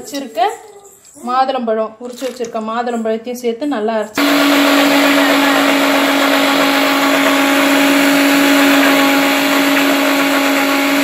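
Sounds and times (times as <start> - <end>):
mixer grinder running: 4.2 - 11.0.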